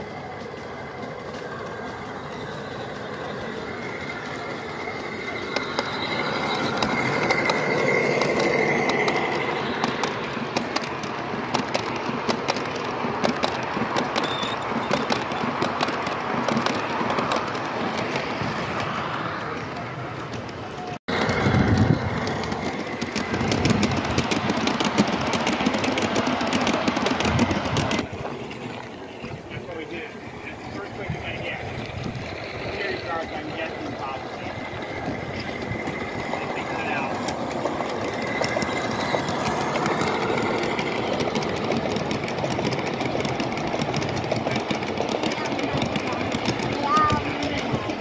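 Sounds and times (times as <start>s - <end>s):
model train rumbling past: 0.0s - 48.0s
wheels clicking over rail joints: 0.0s - 48.0s
fast fine clicking: 20.2s - 28.1s.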